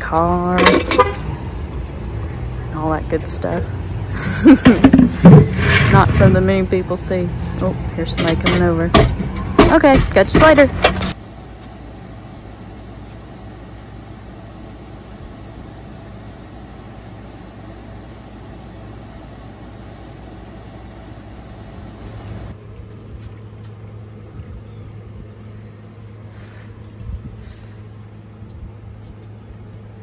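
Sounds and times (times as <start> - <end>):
air conditioner humming: 5.9 - 22.8.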